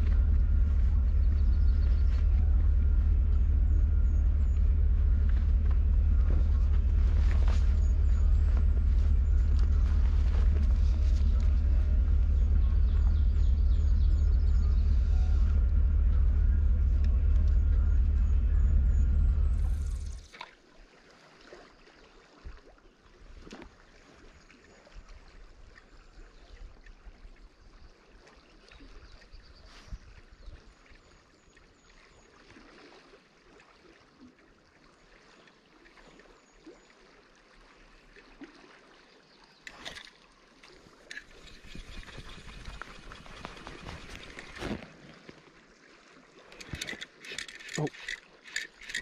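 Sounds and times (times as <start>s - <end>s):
low vehicle rumble: 0.0s - 20.3s, 41.0s - 45.2s
river water trickling: 0.0s - 49.0s
fishing gear clicks and taps: 39.6s - 40.1s, 41.0s - 41.9s, 46.5s - 49.0s.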